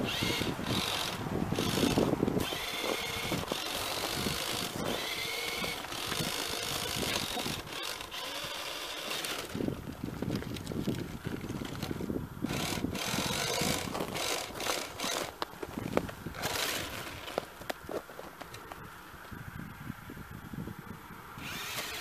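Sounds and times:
toy car motor whining: 0.0 - 10.4, 11.4 - 15.4, 16.4 - 17.5, 21.4 - 22.0.

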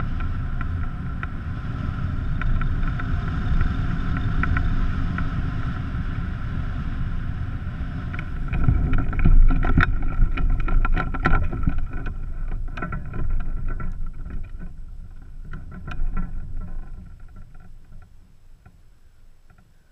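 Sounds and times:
wind rushing over microphone: 0.0 - 19.9
knocks and rattles: 8.1 - 18.8.

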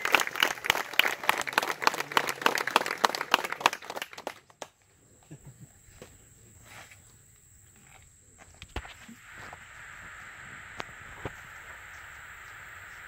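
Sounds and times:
crowd clapping: 0.0 - 4.8.

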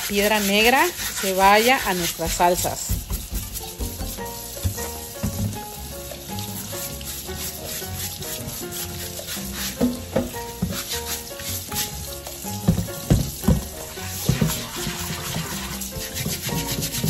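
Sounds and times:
bristle brush scrubbing stone: 0.0 - 17.0
running tap water splashing: 0.0 - 17.0
soft background music: 0.0 - 17.0
stone knocking in sink: 2.2 - 5.8, 9.6 - 11.0, 12.5 - 17.0.

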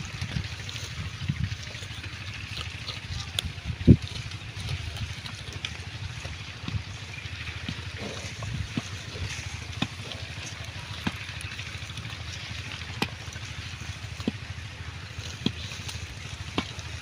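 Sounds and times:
pigs munching grass: 0.0 - 17.0.

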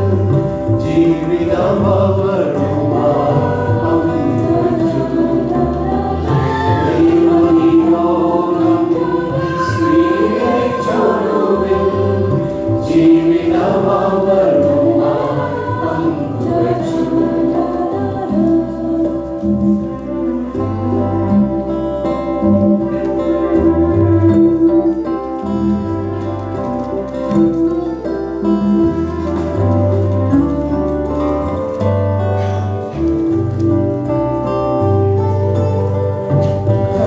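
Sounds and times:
mixed choir singing a carol: 0.0 - 26.6, 34.0 - 37.0.

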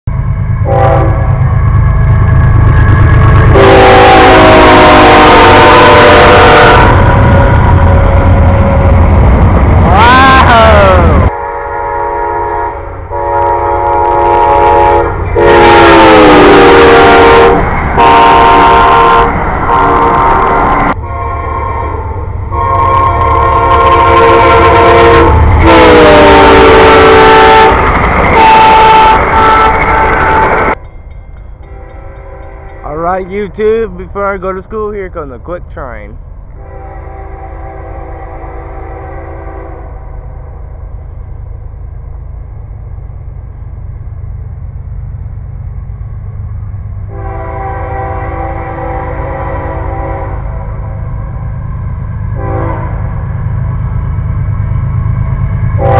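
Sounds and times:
passing train rumble: 0.0 - 55.9
locomotive air horn chord: 0.6 - 1.4, 3.5 - 8.8, 11.3 - 30.8, 31.7 - 33.4, 36.6 - 40.3, 47.1 - 51.0, 52.4 - 53.2.

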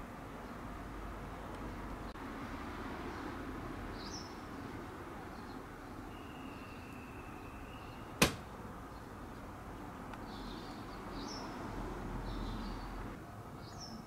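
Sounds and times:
outdoor background noise: 0.0 - 14.0
bird chirp: 3.1 - 9.4, 10.2 - 14.0.

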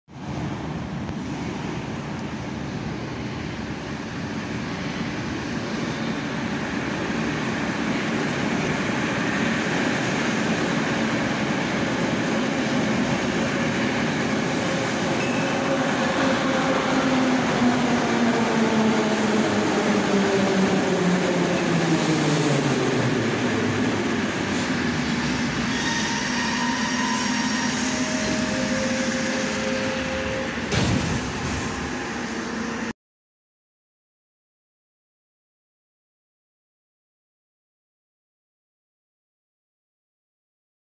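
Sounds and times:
falling whine of train: 0.1 - 33.0
metro train braking to a stop: 3.4 - 32.9.

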